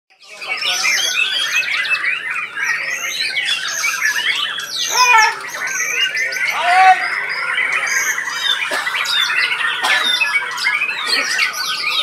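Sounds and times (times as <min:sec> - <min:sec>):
birds singing rapid whistles and trills: 0:00.1 - 0:12.0.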